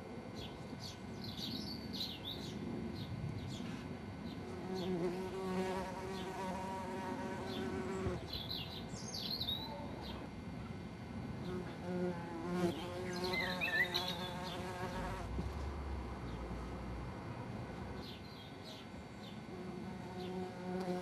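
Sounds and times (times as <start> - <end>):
bumblebees buzzing in flight: 4.4 - 8.4, 11.4 - 15.4, 19.5 - 21.0
birds chirping: 7.5 - 10.3, 12.7 - 15.0.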